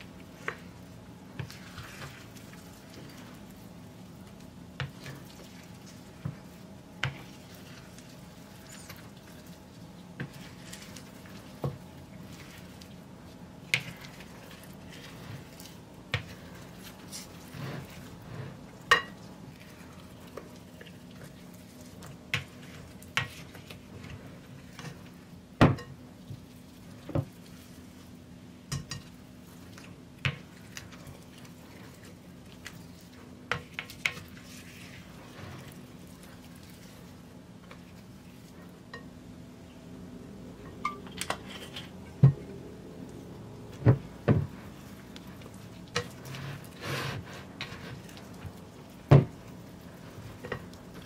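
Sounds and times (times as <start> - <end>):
faint steady hum: 0.0 - 51.0.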